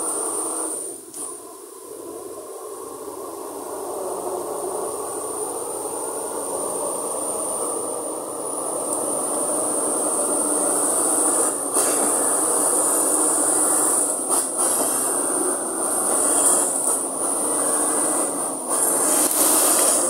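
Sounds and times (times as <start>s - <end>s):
bulldozer diesel engine running: 2.0s - 20.0s
steel tracks clanking: 4.8s - 20.0s.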